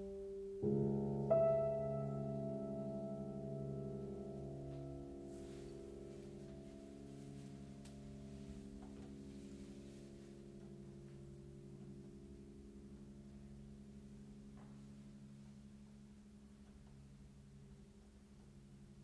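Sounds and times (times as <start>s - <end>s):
low piano tones: 0.0s - 19.0s.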